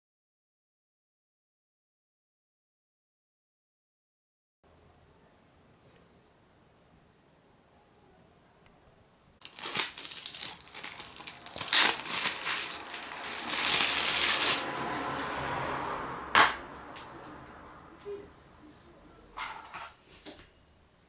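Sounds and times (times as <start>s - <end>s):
plastic case crinkling: 9.4s - 14.7s.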